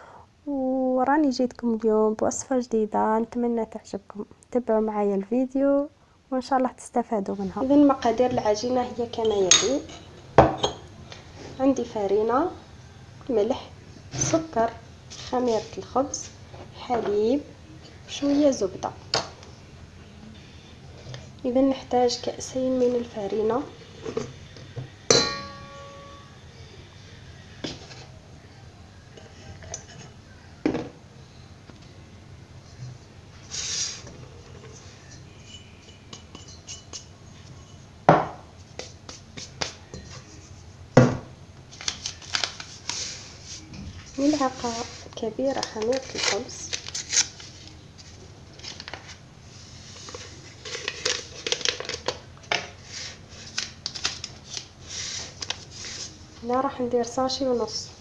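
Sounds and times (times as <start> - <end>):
glass clinking against metal bowl: 9.2 - 10.8, 25.1 - 26.3, 35.3 - 37.1
metallic ring: 25.1 - 26.4, 35.1 - 37.0
paper sachet crinkling: 41.7 - 43.3, 45.6 - 47.8, 50.1 - 52.2, 53.0 - 56.1.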